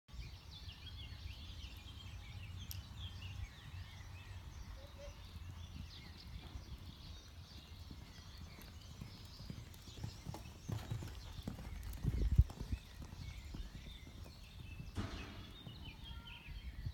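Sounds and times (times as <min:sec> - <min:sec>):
hoofbeats on sand: 0:04.2 - 0:16.9.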